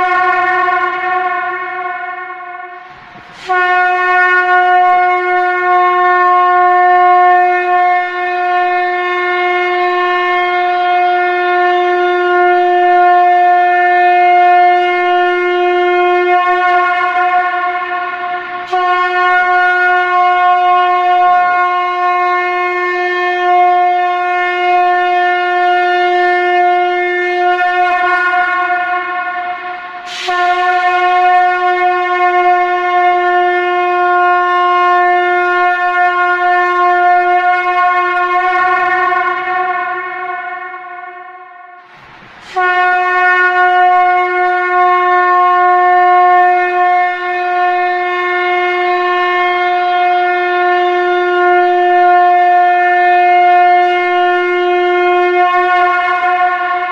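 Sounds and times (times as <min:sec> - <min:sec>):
conch shell blown: 0:00.0 - 0:56.9.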